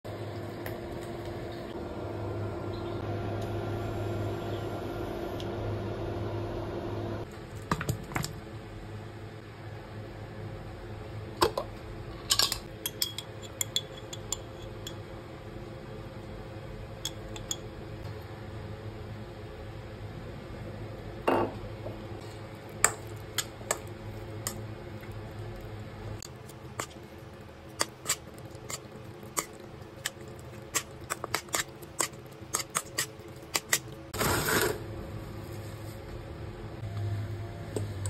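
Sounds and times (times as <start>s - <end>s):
steady background hum: 0.1s - 38.0s
metal spoon clinking on glass: 12.8s - 15.0s.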